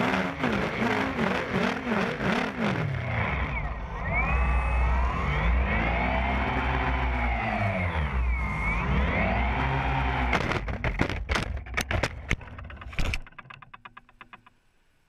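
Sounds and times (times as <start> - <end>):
drone motors whining: 2.8 - 10.9.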